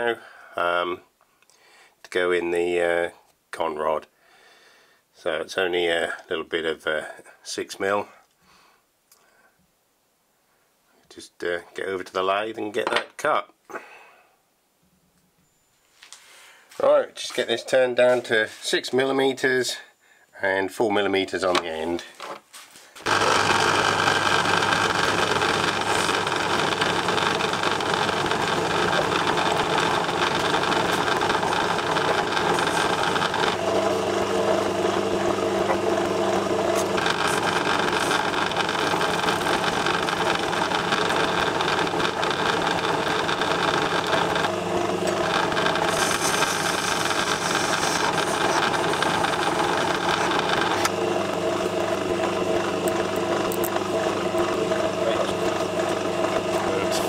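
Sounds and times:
metal lathe humming and rattling: 23.0 - 57.0.

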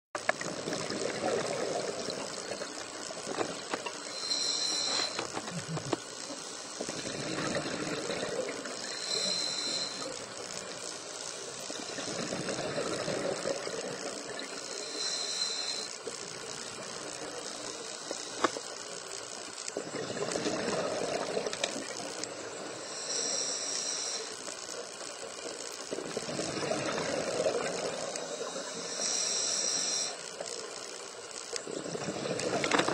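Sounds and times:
exhaled bubbles gushing: 0.4 - 2.7, 6.9 - 9.0, 11.9 - 14.6, 19.8 - 22.1, 26.0 - 28.2, 31.6 - 32.9
regulator hissing inhale: 3.9 - 16.1, 17.4 - 18.8, 20.0 - 24.8, 26.4 - 30.6.

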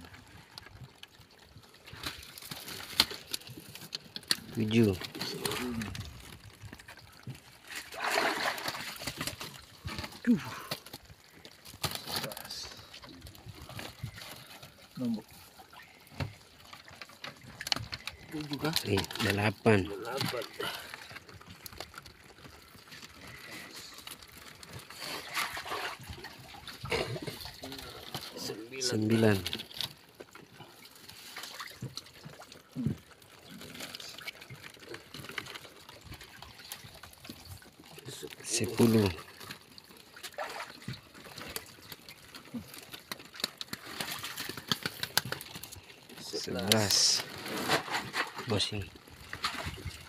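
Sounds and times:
water trickling and splashing: 0.0 - 50.0
lobsters clicking on plastic mesh: 31.5 - 49.6.

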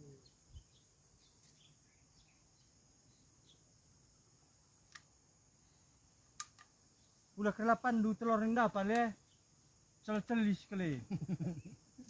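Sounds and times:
insects chirring: 0.0 - 12.0
faint click: 4.9 - 5.1.

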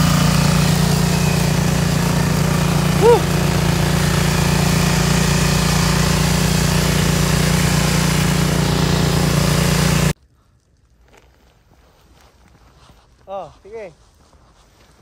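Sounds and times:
engine running: 0.0 - 10.2.

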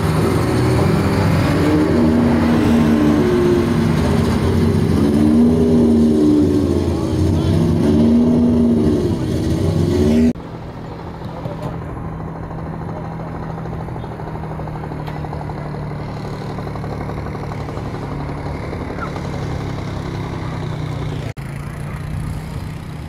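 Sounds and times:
race car engine idling: 10.3 - 23.0.

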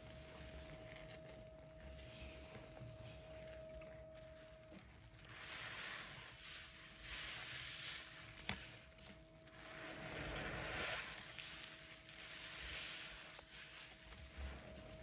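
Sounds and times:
sponge squishing in suds: 5.3 - 8.8, 9.7 - 15.0.

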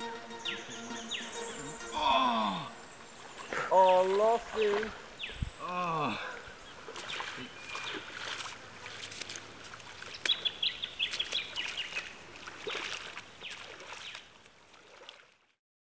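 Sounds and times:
bird chirping: 0.0 - 8.2, 10.0 - 12.1
wading through shallow water: 1.2 - 15.6.

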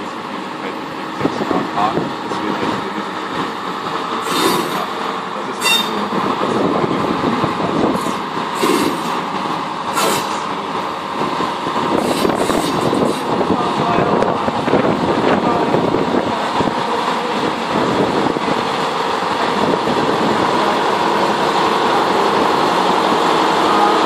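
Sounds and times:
steel wheels rumbling on rails: 0.0 - 24.0
wheel squeal: 4.2 - 4.9, 5.6 - 6.1, 12.0 - 13.2.

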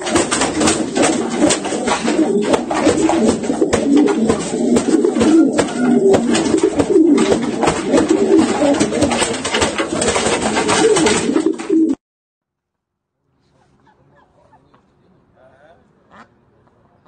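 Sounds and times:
pigeons cooing: 0.0 - 12.0
wings flapping: 0.0 - 12.0.

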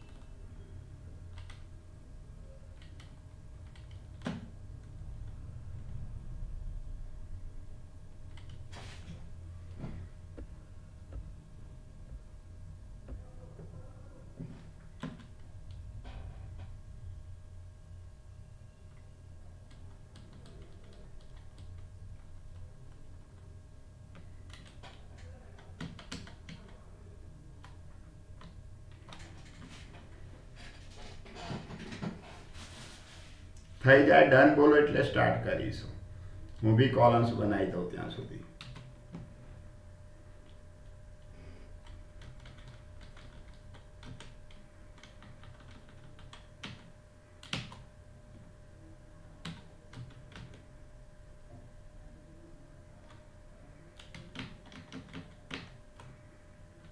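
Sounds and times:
low steady hum: 0.0 - 56.9
computer keyboard typing: 1.3 - 1.7, 2.7 - 4.5, 8.3 - 8.6, 15.0 - 15.8, 19.6 - 23.0, 24.1 - 26.8, 28.4 - 29.7, 38.6 - 39.2, 41.8 - 47.9, 49.4 - 50.6, 53.9 - 56.2.

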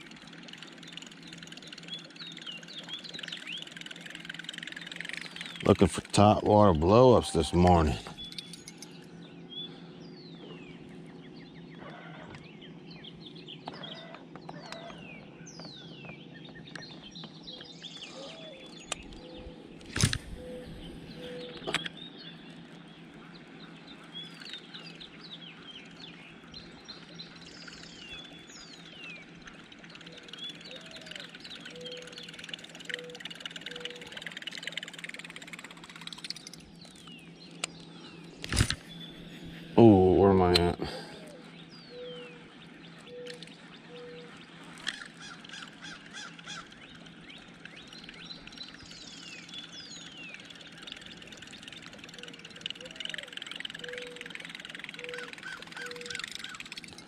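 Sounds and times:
lower bird call: 16.5 - 22.0, 37.2 - 56.8.

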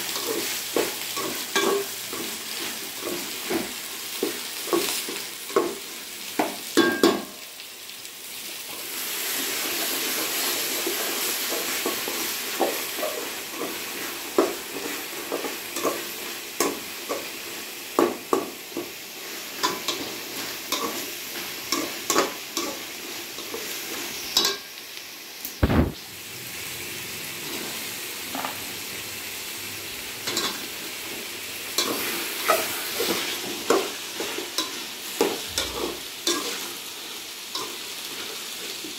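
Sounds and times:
vegetables sizzling in oil: 0.0 - 38.9
loud knock: 25.6 - 26.0.

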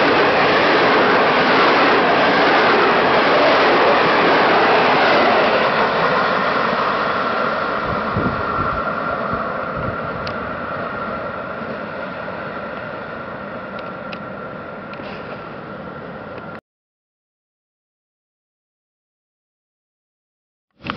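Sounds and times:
train wheels rumbling on rail: 0.0 - 16.6.

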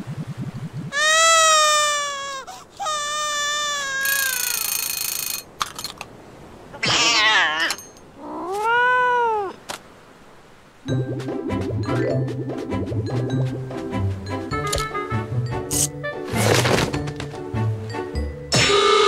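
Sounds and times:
cartoon cats yowling: 6.8 - 9.6.

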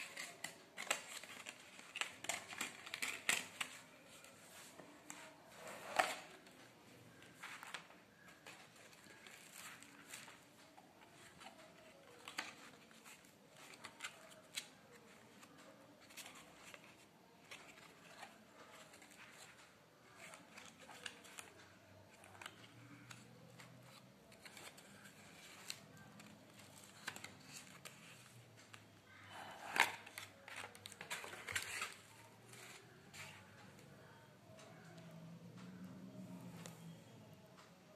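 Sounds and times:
paper crackling: 0.0 - 33.6
paper clicks and rustles: 0.0 - 34.9.

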